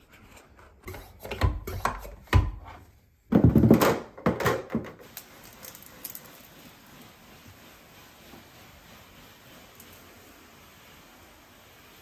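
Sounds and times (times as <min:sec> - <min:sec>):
hand pump strokes: 0:00.8 - 0:02.3.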